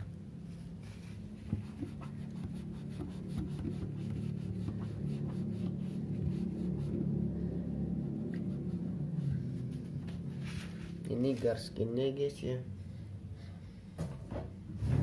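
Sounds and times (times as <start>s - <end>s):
steady low hum: 0.0s - 15.0s
tissue rubbing plastic: 9.4s - 11.1s.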